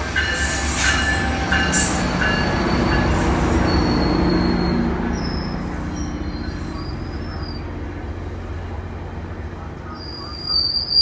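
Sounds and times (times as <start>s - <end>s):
diesel locomotive engine drone: 0.0s - 11.0s
train wheels rumbling on rails: 0.0s - 11.0s
high-pitched wheel squeals: 0.7s - 7.6s, 10.0s - 11.0s.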